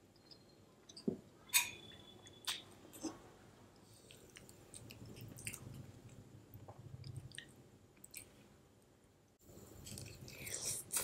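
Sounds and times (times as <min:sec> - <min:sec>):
close chewing of soft food: 0:03.8 - 0:08.6, 0:09.6 - 0:11.0.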